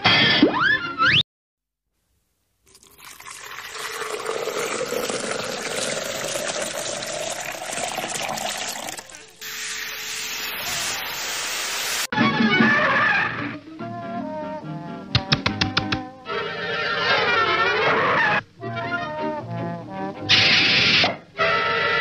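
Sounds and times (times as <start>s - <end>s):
cartoon rising rushing hiss: 9.4s - 12.1s
steady hiss: 9.4s - 12.1s.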